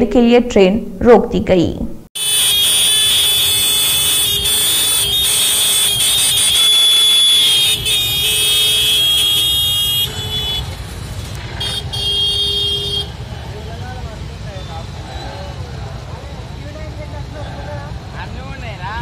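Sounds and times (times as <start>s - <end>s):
vehicle horns blaring: 2.2s - 14.0s
idling traffic: 2.2s - 19.0s.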